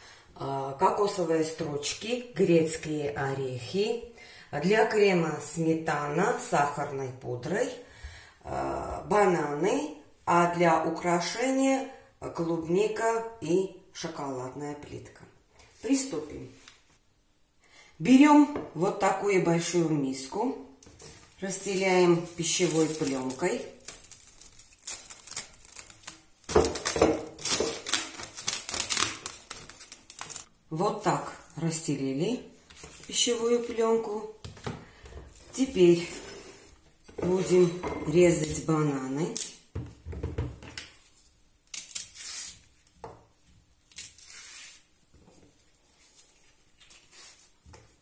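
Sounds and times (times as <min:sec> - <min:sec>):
bananas rustling and tearing: 0:20.9 - 0:30.5, 0:41.0 - 0:43.0, 0:43.7 - 0:48.0
plastic cling film crinkling: 0:20.9 - 0:30.5.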